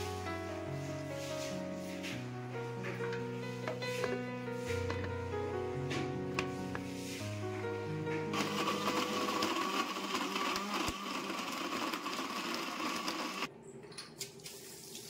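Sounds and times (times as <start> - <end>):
mixer grinder blending: 8.3 - 13.5.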